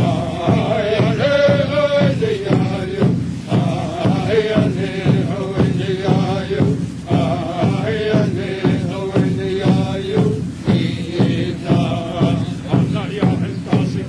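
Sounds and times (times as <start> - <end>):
person singing over a beat: 0.0 - 14.0.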